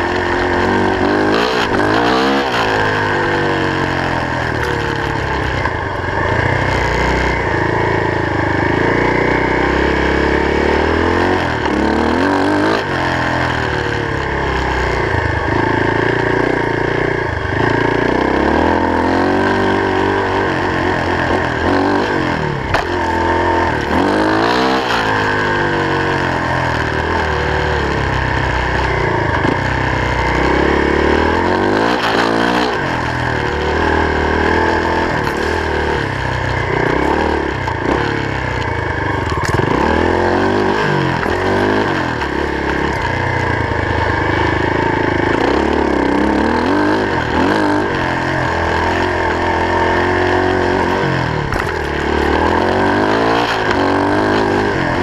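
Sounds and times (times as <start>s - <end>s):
vehicle engine revving: 0.0s - 55.0s.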